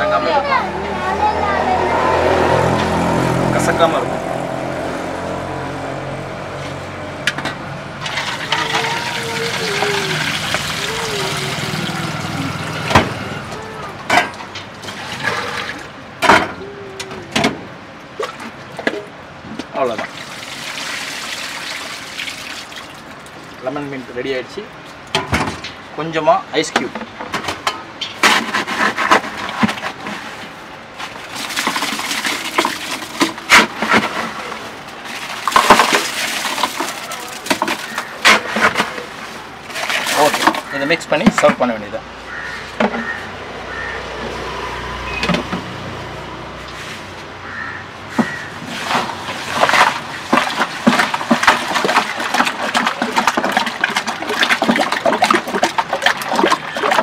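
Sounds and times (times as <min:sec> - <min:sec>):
ice clattering into bucket: 0:08.0 - 0:13.0, 0:26.8 - 0:41.7, 0:48.2 - 0:57.0
liquid splashing: 0:08.0 - 0:13.3, 0:14.0 - 0:16.0, 0:19.9 - 0:23.7, 0:30.5 - 0:41.6, 0:46.7 - 0:57.0
paddle knocks and splashes: 0:48.1 - 0:57.0.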